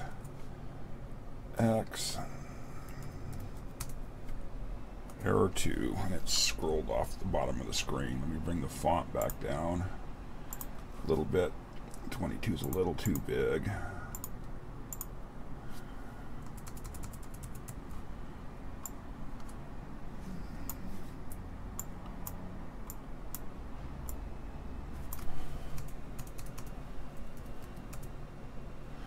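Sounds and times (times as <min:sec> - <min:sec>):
laptop keyboard typing: 0:02.9 - 0:04.0, 0:16.4 - 0:17.8, 0:25.0 - 0:28.1.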